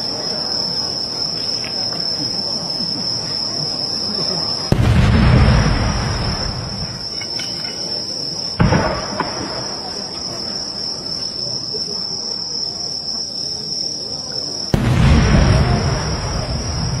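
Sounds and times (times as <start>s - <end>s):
crickets trilling: 0.0s - 17.0s
firework burst with boom: 4.7s - 7.1s, 8.6s - 10.0s, 14.7s - 17.0s
firework mortar thump: 4.7s - 7.7s, 8.6s - 9.7s, 14.7s - 17.0s.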